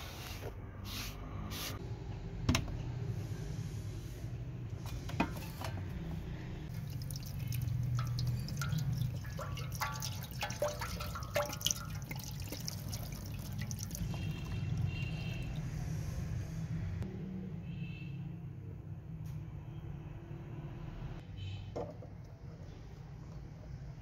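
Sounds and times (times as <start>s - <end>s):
liquid pouring and splashing: 6.7s - 15.9s.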